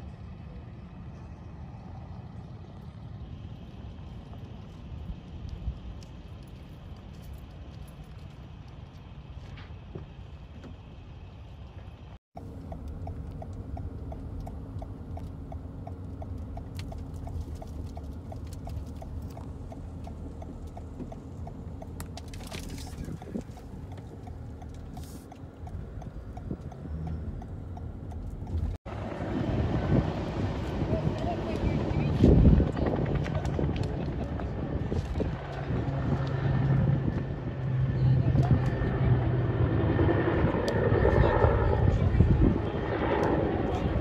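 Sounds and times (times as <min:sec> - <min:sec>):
car cabin rumble: 0:12.4 - 0:28.8
mechanical ticking: 0:23.0 - 0:28.8.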